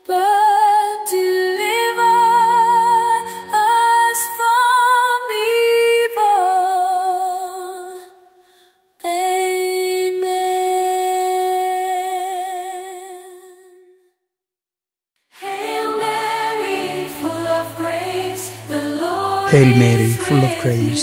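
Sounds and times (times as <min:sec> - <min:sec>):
woman singing long held notes: 0:19.5 - 0:21.0.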